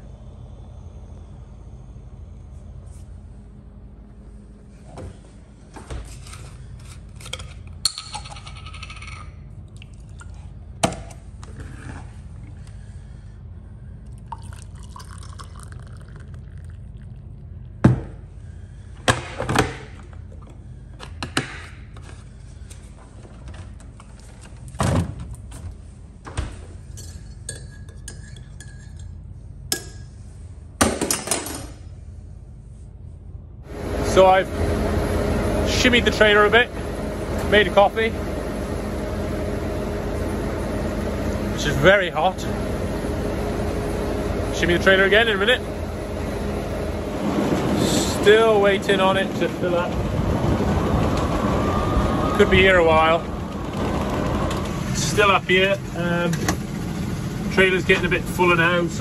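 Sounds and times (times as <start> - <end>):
steady low hum: 0.0 - 59.0
water pouring into mug: 14.1 - 17.4.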